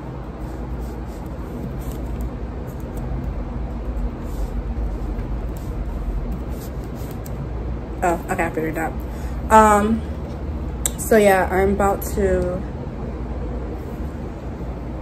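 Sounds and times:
steady low rumble: 0.0 - 15.0
laptop keyboard typing: 0.8 - 3.4, 4.1 - 7.4.

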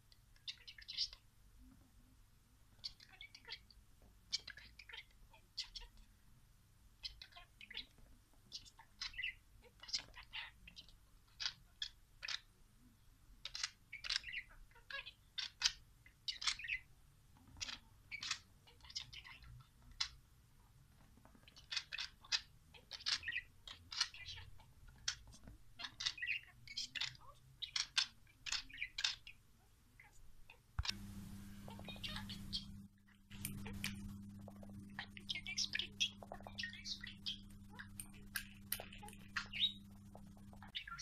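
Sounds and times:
budgerigar chattering: 2.8 - 3.6, 8.5 - 12.5, 13.4 - 16.9, 17.6 - 20.2, 21.5 - 29.4, 31.6 - 41.0.

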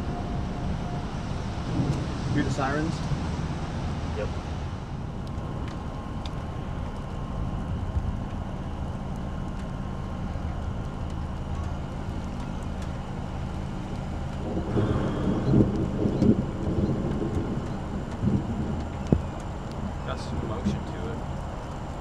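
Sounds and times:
faint warning sirens: 0.0 - 22.0
low outdoor rumble: 0.0 - 22.0
thunder rumbling: 0.0 - 22.0.

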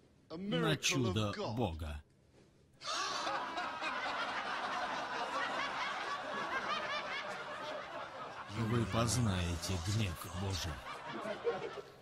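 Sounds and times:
crowd laughing and chattering: 2.9 - 12.0.

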